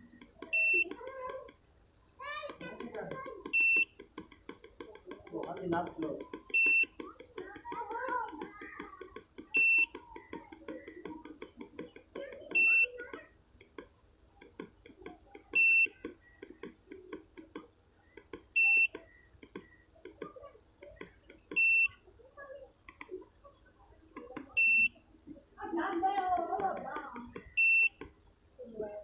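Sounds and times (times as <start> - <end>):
faint background clicks: 0.0 - 1.7, 2.3 - 29.0
background murmur: 0.0 - 29.0
short high meter beeps: 0.5 - 1.0, 3.5 - 4.0, 6.5 - 7.0, 9.5 - 10.0, 12.5 - 13.2, 15.6 - 16.5, 18.6 - 19.9, 21.6 - 22.0, 24.5 - 25.0, 27.3 - 28.0.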